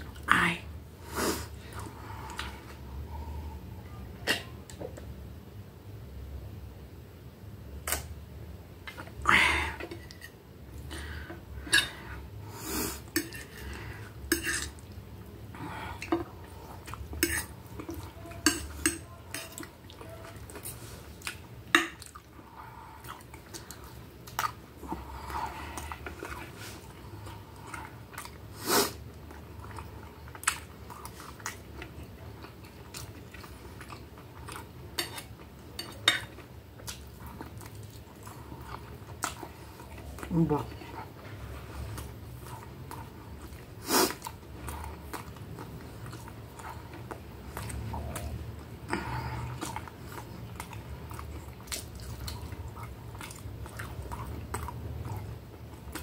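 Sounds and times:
chewing: 0:13.0 - 0:56.0.

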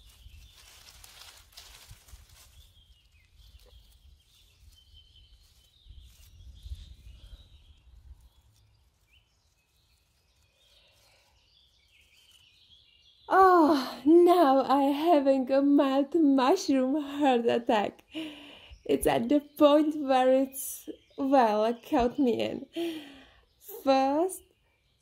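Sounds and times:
dry leaves rustling: 0:00.0 - 0:13.7
faint bird chirps: 0:02.4 - 0:14.0.

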